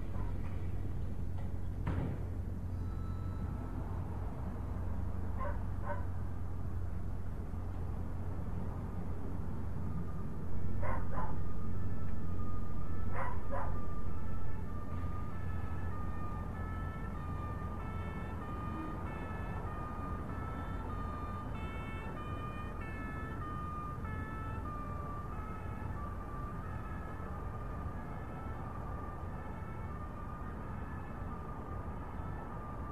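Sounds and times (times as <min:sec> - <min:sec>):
distant two-tone siren: 0:02.4 - 0:32.9.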